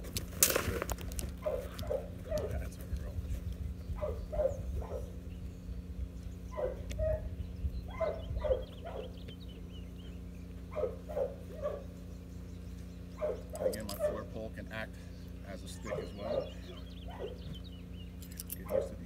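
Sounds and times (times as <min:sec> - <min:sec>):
puppy barking: 0:01.4 - 0:02.8, 0:04.0 - 0:05.2, 0:06.5 - 0:09.2, 0:10.7 - 0:12.0, 0:13.2 - 0:14.5, 0:15.6 - 0:17.6, 0:18.6 - 0:19.0.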